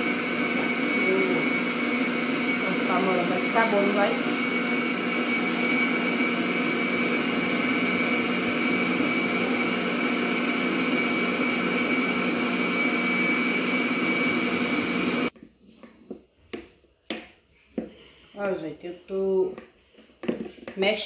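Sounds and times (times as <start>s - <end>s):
stand mixer whisking: 0.0s - 15.4s.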